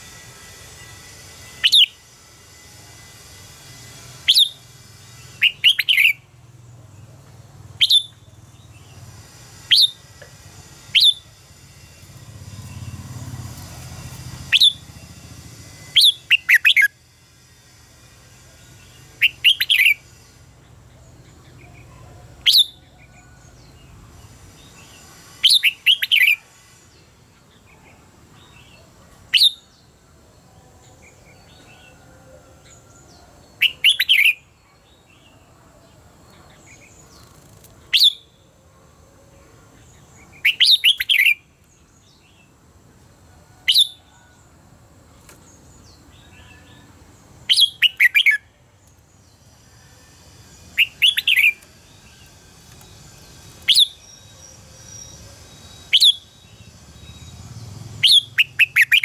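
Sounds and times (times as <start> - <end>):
bulbul singing: 0.1 - 6.4, 14.3 - 23.0, 33.5 - 35.2, 39.8 - 42.5, 45.8 - 59.0.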